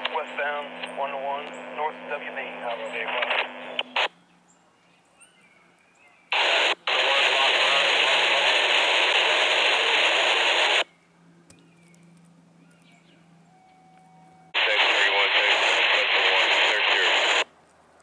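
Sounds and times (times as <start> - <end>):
radio static hiss: 0.0 - 4.2, 6.3 - 10.9, 14.6 - 17.5.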